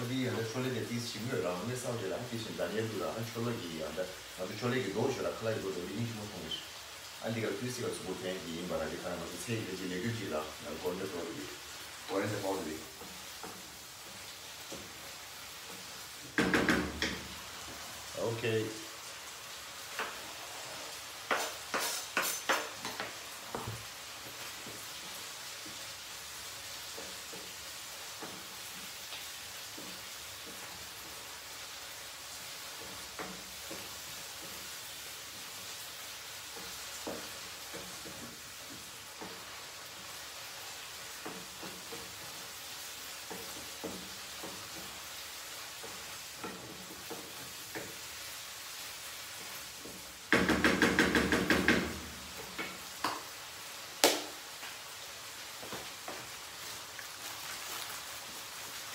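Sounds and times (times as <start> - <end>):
food sizzling in a frying pan: 0.0 - 58.9
knocks against a pan: 16.2 - 17.3, 49.8 - 53.2
spatula scraping a pan: 19.9 - 23.2.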